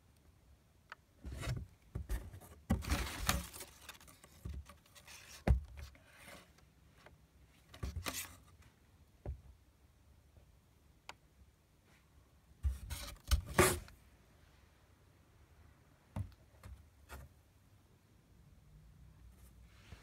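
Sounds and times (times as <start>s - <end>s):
packing paper rustling and crinkling: 2.7s - 5.4s.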